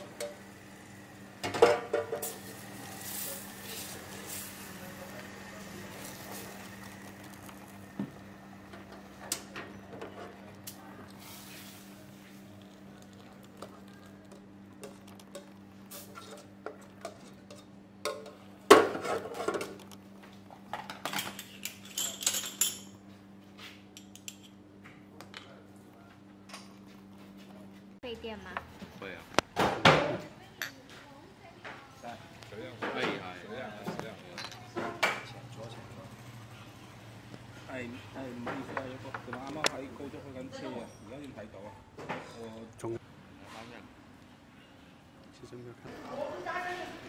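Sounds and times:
porcelain spoons clinking bowls: 21.2s - 23.0s.

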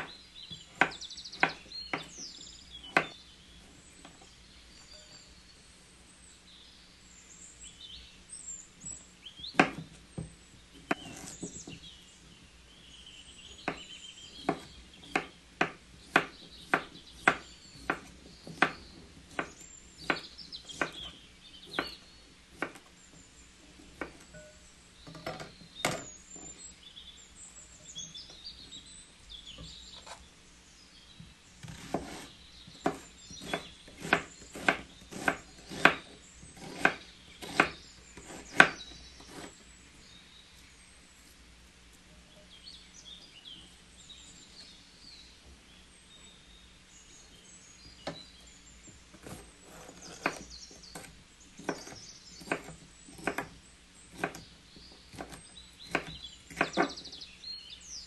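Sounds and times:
knife chopping on wooden board: 0.0s - 2.2s, 2.8s - 3.2s, 9.5s - 11.8s, 13.6s - 22.0s, 22.6s - 22.8s, 23.8s - 24.4s, 31.6s - 39.5s, 49.2s - 54.5s, 55.1s - 57.1s
faint birds chirping: 0.0s - 58.0s.

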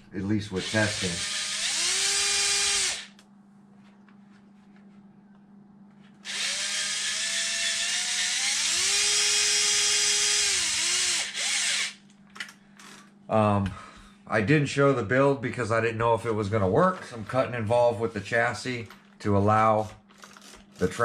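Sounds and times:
electric motor whine: 0.6s - 3.2s, 6.2s - 12.0s.

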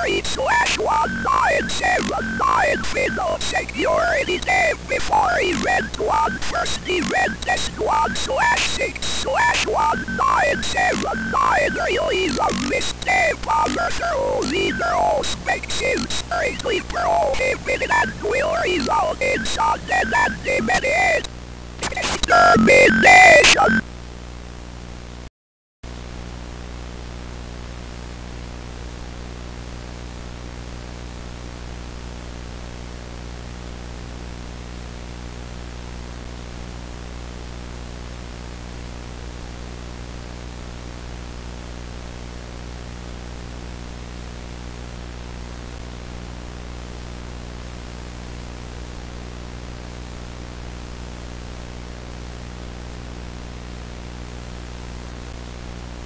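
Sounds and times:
static hiss: 0.0s - 23.8s.

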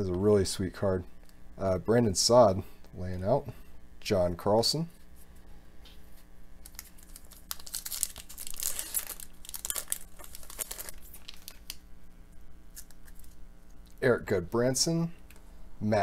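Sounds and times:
foil wrapper tearing and crinkling: 6.6s - 11.8s.

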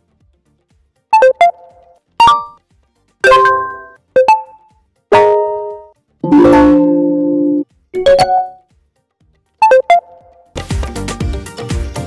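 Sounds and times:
electronic notification chimes: 1.2s - 2.6s, 3.2s - 8.6s, 9.6s - 10.3s.

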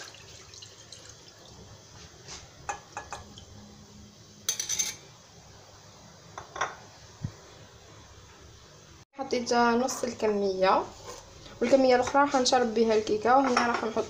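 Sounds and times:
juice pouring: 0.0s - 1.8s
bowls clinking: 4.4s - 5.1s.

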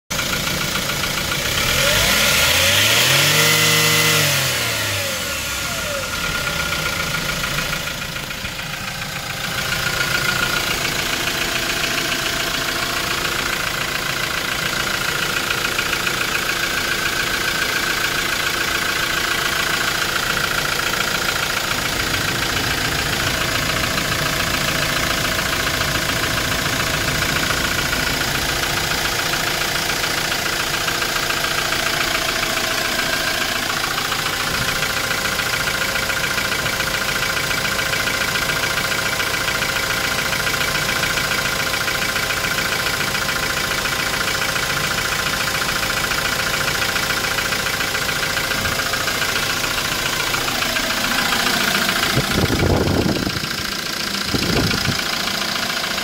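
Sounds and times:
diesel truck engine revving: 1.3s - 36.4s, 47.0s - 56.0s.

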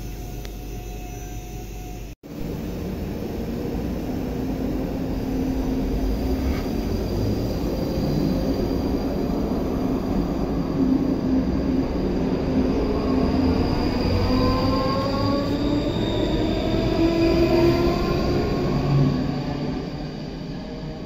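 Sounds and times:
faint high whine: 0.0s - 16.3s.

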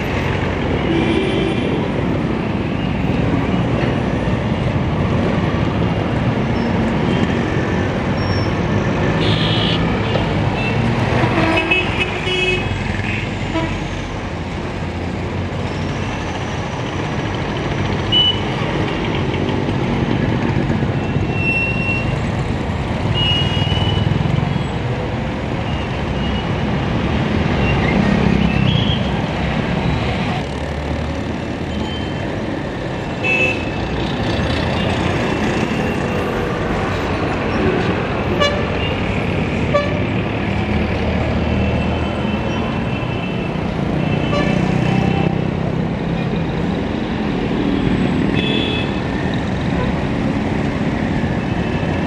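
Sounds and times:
traffic engines passing: 0.0s - 52.0s.

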